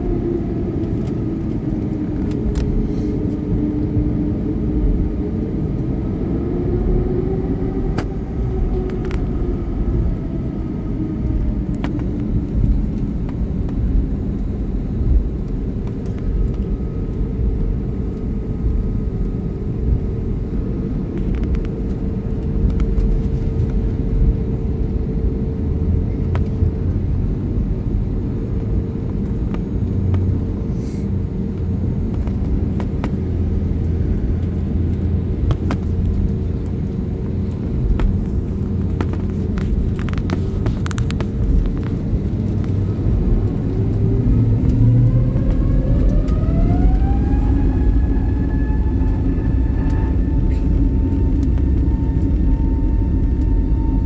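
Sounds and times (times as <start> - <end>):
jet cabin rumble: 0.0 - 54.0
jet engines spooling up: 28.1 - 54.0.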